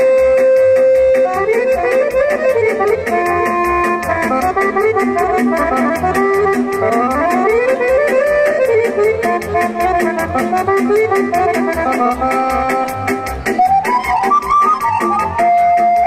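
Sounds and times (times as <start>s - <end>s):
instrumental folk dance music: 0.0s - 16.0s
lead instrument quick melodic runs: 0.0s - 16.0s.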